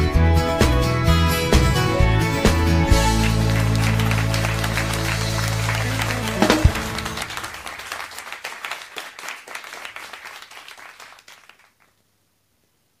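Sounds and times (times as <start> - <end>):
audience applause: 2.9 - 11.9.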